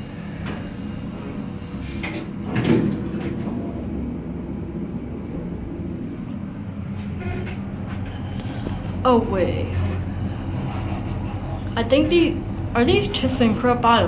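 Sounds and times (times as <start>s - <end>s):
elevator low rumble: 0.0s - 14.0s
elevator knocks and thump: 2.1s - 3.8s.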